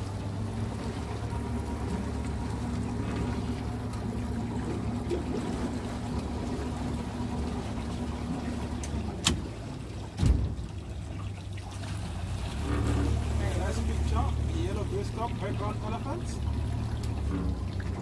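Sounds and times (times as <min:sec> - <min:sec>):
boat motor running: 0:00.0 - 0:18.0
water lapping against hull: 0:00.0 - 0:18.0
short low thump: 0:10.2 - 0:10.7.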